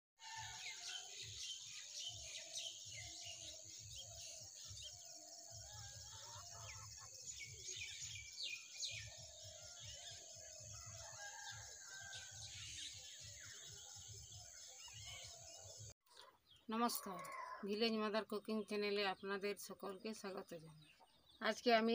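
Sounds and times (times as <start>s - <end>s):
small birds chirping: 0.2s - 21.9s
chickens clucking: 6.0s - 7.2s.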